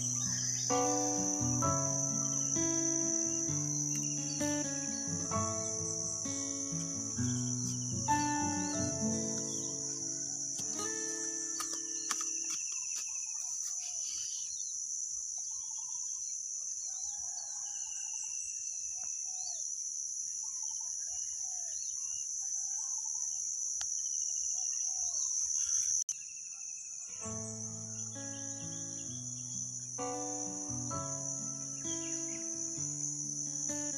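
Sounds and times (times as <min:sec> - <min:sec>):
birds chirping and trilling: 0:00.0 - 0:14.8, 0:24.5 - 0:33.9
high-pitched insect chorus: 0:00.0 - 0:33.9.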